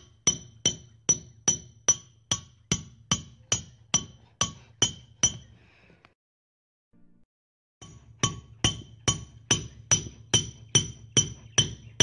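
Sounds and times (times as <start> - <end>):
hammer striking nail: 0.0 - 5.4, 7.8 - 12.0.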